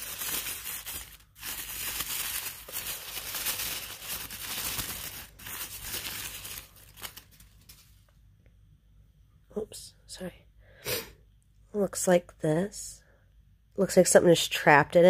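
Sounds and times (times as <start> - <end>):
wrapping paper crinkling: 0.0 - 8.1.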